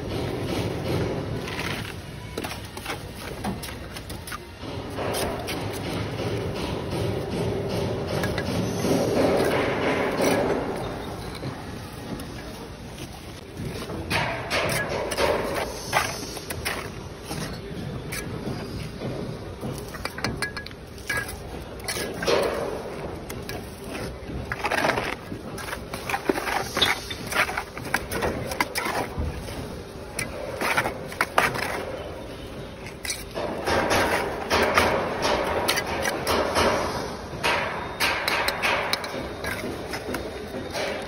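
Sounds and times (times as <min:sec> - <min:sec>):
bricks tapping and knocking: 0:00.0 - 0:12.5, 0:13.4 - 0:41.0
trowel scraping mortar: 0:21.0 - 0:32.2.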